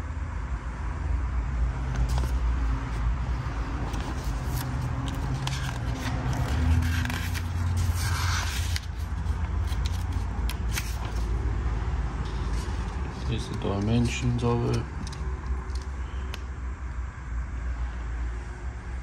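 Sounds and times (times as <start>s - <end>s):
paper pages turning and rustling: 1.8s - 11.4s, 12.2s - 15.9s.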